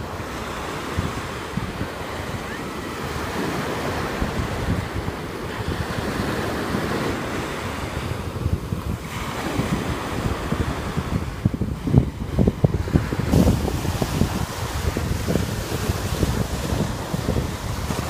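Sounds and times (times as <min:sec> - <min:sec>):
waves breaking on beach: 0:00.0 - 0:18.0
wind buffeting microphone: 0:00.0 - 0:18.0.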